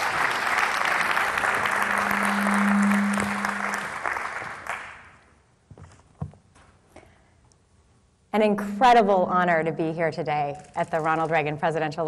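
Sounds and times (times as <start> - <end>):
audience applauding: 0.0 - 5.2
low steady hum: 0.8 - 4.4.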